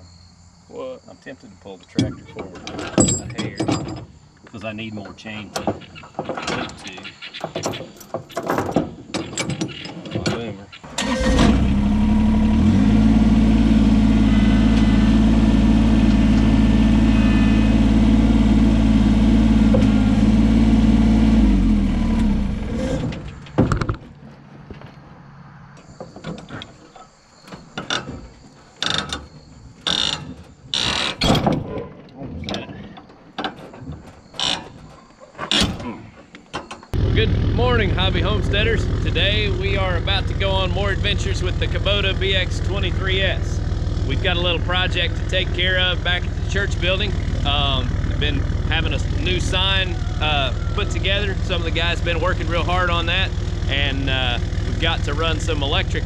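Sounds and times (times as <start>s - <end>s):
metallic clanks and knocks: 1.9s - 4.2s, 5.0s - 10.5s, 22.8s - 25.1s, 25.9s - 37.0s
tractor diesel engine running: 10.9s - 24.6s, 36.9s - 56.0s.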